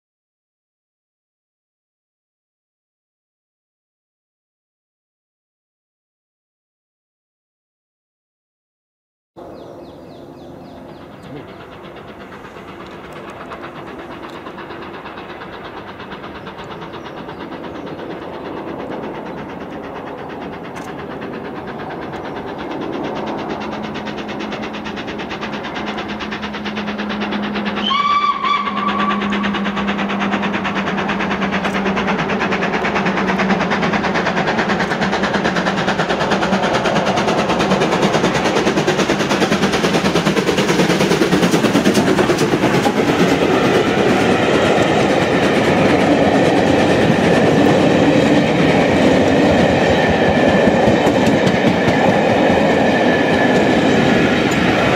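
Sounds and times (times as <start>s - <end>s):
steam train passing: 9.4s - 54.9s
steam whistle: 27.2s - 30.1s.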